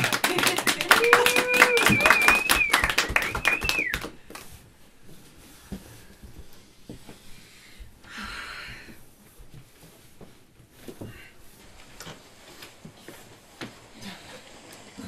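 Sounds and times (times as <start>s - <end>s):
audience clapping: 0.0s - 4.5s
high wavering whistle: 1.1s - 4.1s.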